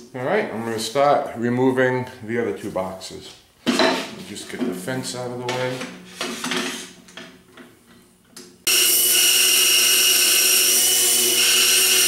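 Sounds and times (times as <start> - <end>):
bandsaw running: 8.7 - 12.0.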